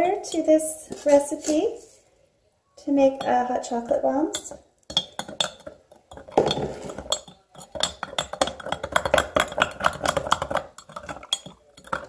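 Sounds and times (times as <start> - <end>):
spoon clinking against glass mug: 4.3 - 12.0.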